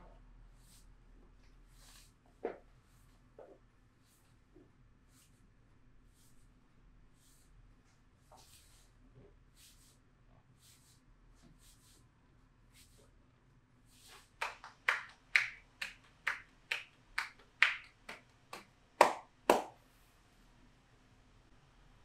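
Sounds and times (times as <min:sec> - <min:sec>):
hands slapping a back: 0:14.1 - 0:19.8.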